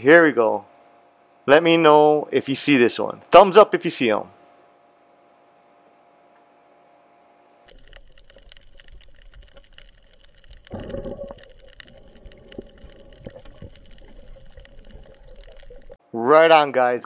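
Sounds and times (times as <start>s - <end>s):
crackle of reef clicks: 7.7s - 16.0s.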